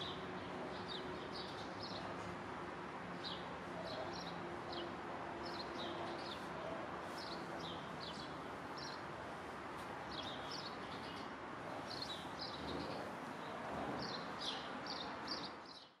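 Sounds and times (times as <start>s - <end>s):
street noise hiss: 0.0s - 16.0s
small birds chirping: 10.1s - 16.0s.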